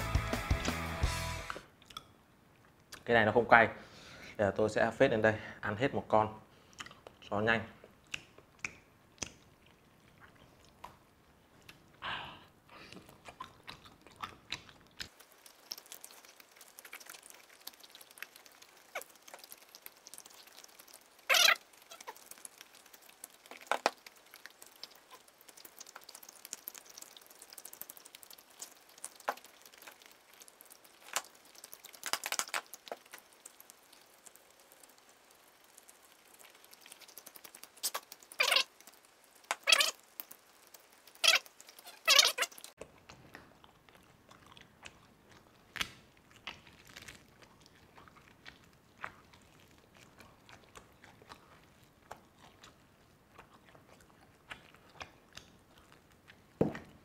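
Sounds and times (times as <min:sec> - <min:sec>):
man chewing: 0:06.6 - 0:57.0
wet clicks and smacks: 0:06.7 - 0:12.0, 0:12.9 - 0:57.0
meat pulled apart by hand: 0:28.2 - 0:33.7, 0:44.8 - 0:52.2.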